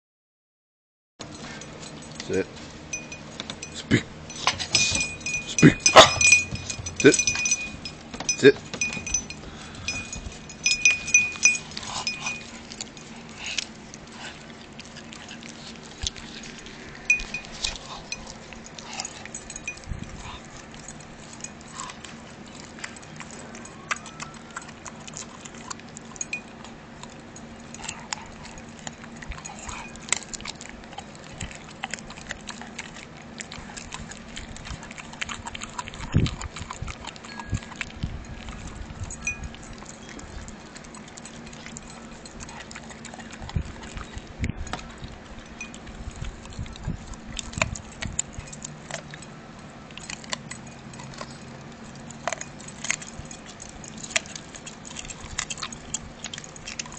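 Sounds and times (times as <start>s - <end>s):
puppy chewing on bone: 1.2s - 56.9s
metal collar tag clinking: 2.9s - 13.0s, 19.0s - 21.8s.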